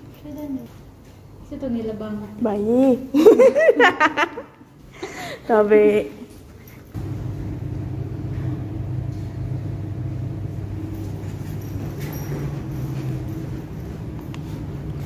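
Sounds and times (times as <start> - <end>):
low machine hum: 7.0 - 15.0.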